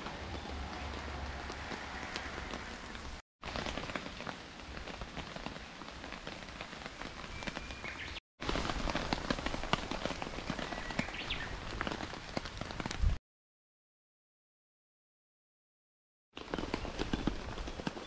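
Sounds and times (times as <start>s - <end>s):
rain on foliage and grass: 0.0s - 13.2s, 16.4s - 18.0s
raindrops ticking close by: 0.0s - 13.2s.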